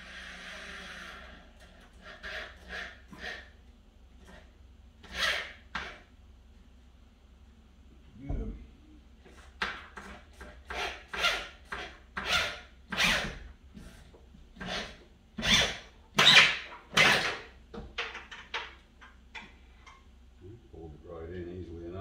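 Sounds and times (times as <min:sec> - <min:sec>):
power drill driving a screw: 0:00.0 - 0:03.4, 0:05.0 - 0:06.0, 0:10.7 - 0:13.4, 0:14.6 - 0:17.4.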